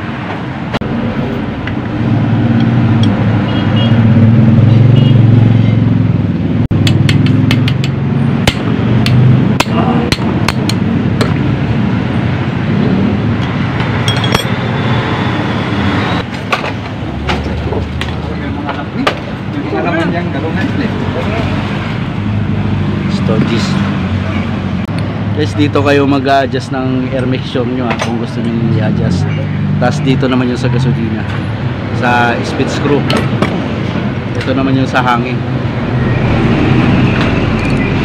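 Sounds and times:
metal parts clinking: 13.9s - 14.6s.

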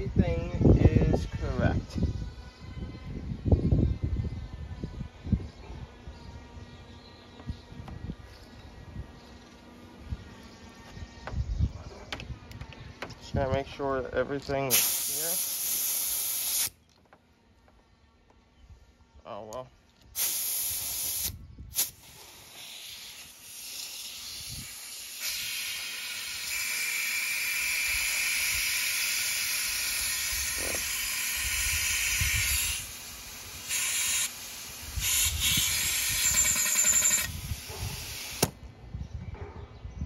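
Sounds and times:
compressed air hissing: 14.7s - 16.8s, 20.1s - 38.6s.

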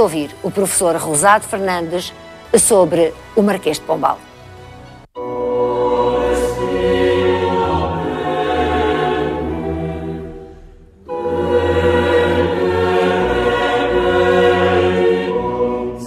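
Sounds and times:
choir singing sustained chords: 4.4s - 16.0s.

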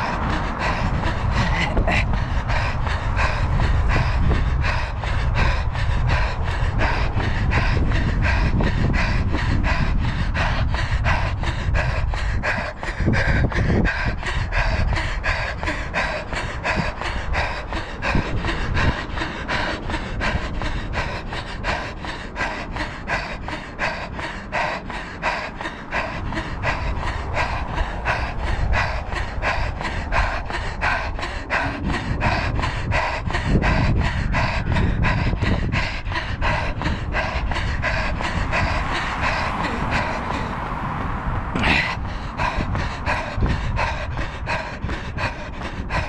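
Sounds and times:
runner panting: 0.0s - 46.0s
footsteps on asphalt: 19.2s - 46.0s.

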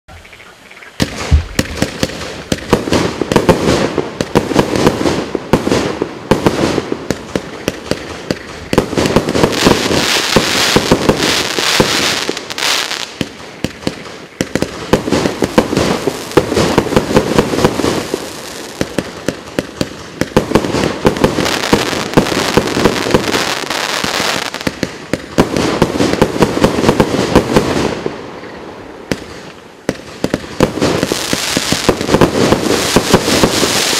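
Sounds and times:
fireworks launch thumps: 1.0s - 2.6s
fireworks aerial bursts: 1.0s - 33.9s.

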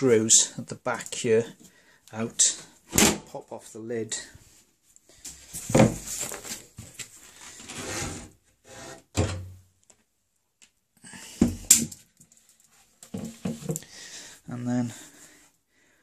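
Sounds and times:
lid scraping slide: 7.6s - 9.3s.

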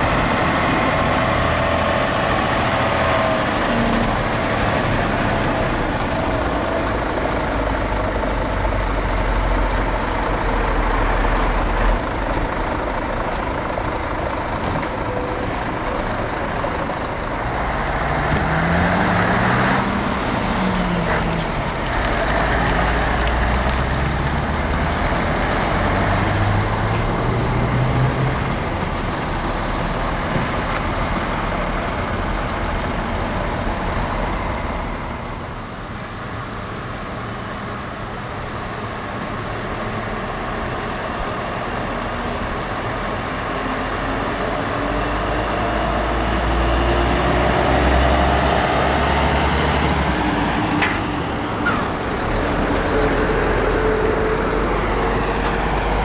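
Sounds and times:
truck engine revving: 0.0s - 11.8s, 16.3s - 35.0s, 43.8s - 56.0s
truck accelerating: 0.0s - 56.0s.

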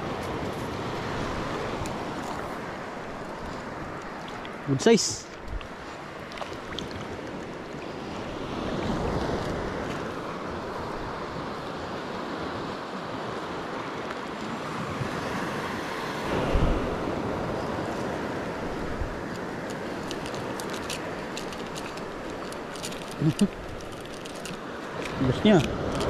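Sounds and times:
sea waves: 0.0s - 26.0s
wind on microphone: 14.8s - 24.1s.

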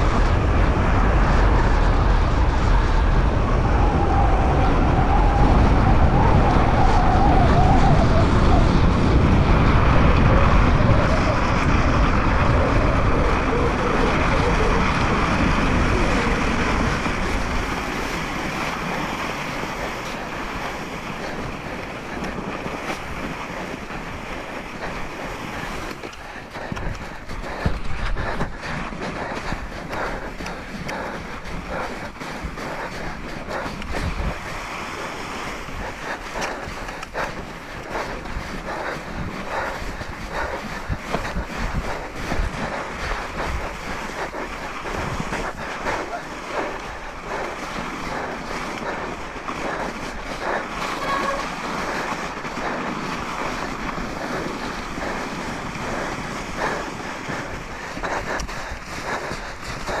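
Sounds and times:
wind on microphone: 0.0s - 60.0s
running footsteps crunching snow: 8.8s - 60.0s.

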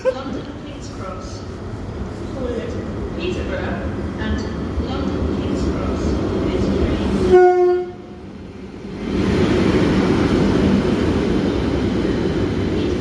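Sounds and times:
train passing rumble: 0.0s - 13.0s
train horn blast: 7.2s - 8.2s.

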